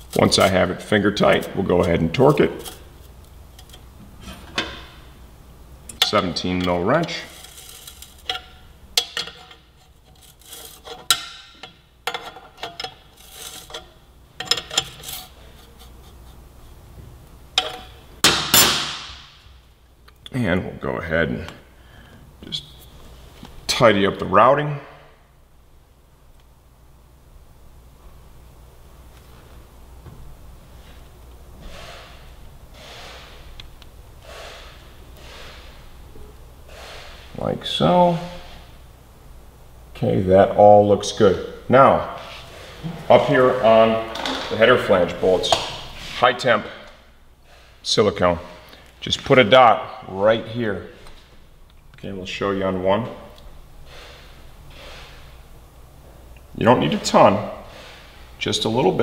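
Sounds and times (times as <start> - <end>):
wrench clicking and scraping on metal: 5.9 - 15.8, 17.6 - 18.0
man breathing heavily through nose: 31.6 - 33.6, 34.2 - 36.0, 36.6 - 37.4, 47.4 - 47.8, 53.8 - 55.4.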